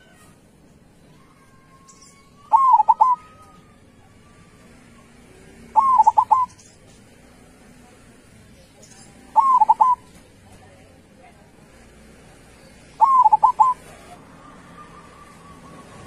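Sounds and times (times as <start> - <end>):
dove cooing: 2.5 - 3.6, 5.0 - 6.6, 9.2 - 10.2, 12.9 - 16.0.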